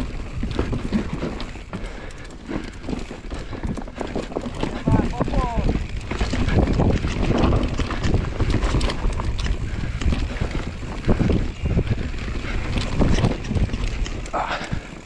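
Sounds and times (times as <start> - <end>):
bike rattling and knocking: 0.0 - 15.0
bike tyre noise on dirt: 0.0 - 15.0
wind on microphone: 3.5 - 15.0.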